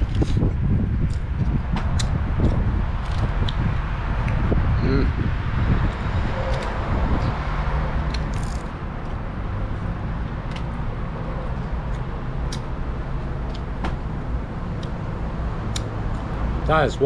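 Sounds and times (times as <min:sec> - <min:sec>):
wind on microphone: 0:00.0 - 0:09.0
road traffic rumble: 0:00.0 - 0:17.0.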